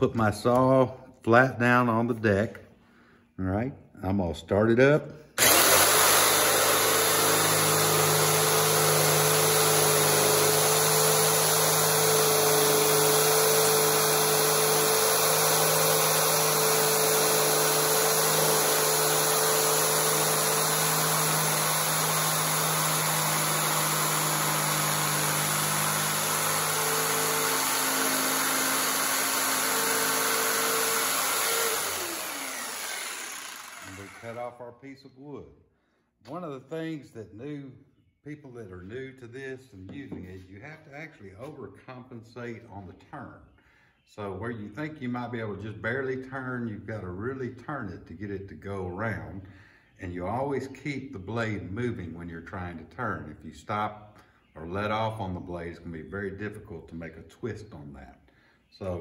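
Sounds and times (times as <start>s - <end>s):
jigsaw cutting wood: 5.4s - 34.5s
motor spinning down: 5.4s - 34.5s.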